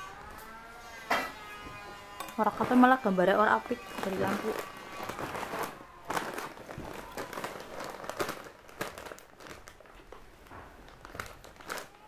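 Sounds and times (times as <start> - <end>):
rustling noodles: 2.4 - 12.0.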